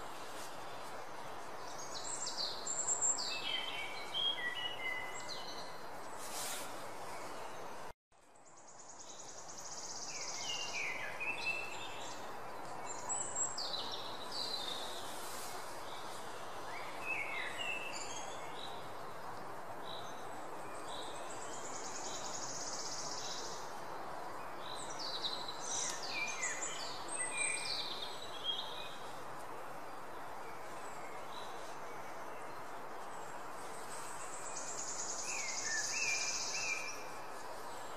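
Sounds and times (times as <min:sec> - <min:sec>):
steady background noise: 0:00.0 - 0:37.9
birds chirping and trilling: 0:15.8 - 0:29.1.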